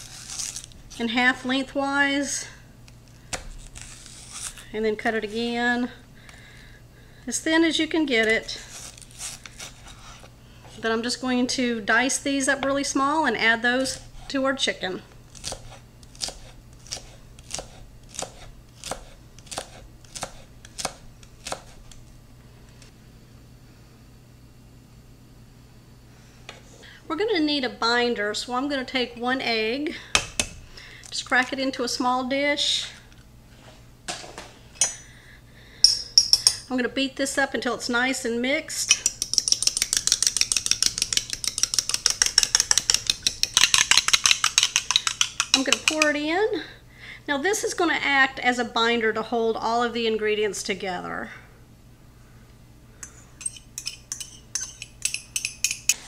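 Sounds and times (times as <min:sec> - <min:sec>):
knife chopping on wooden board: 0:15.4 - 0:21.8
fork beating egg in dish: 0:38.9 - 0:46.1, 0:53.4 - 0:56.0.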